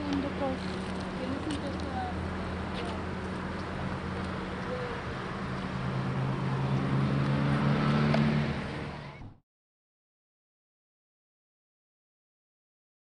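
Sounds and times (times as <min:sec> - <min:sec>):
outdoor traffic noise: 0:00.0 - 0:09.4
vehicle engine humming: 0:00.0 - 0:09.4.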